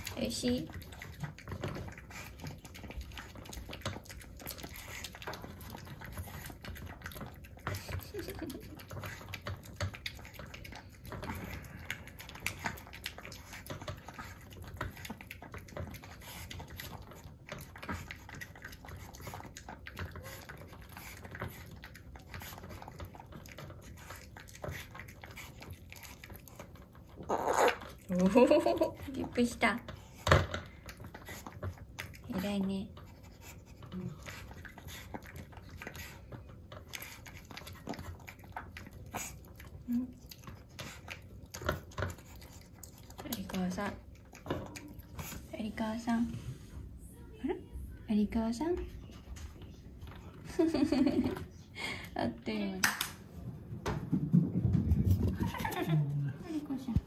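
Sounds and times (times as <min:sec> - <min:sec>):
puppy chewing kibble: 0:00.0 - 0:52.6, 0:53.2 - 0:57.0.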